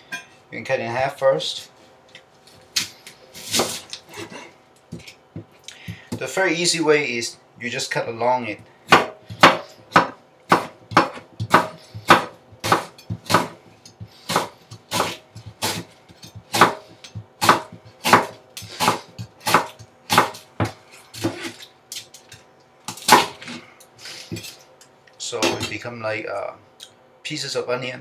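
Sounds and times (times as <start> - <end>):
knife slicing onion: 2.7 - 5.1, 8.9 - 22.2.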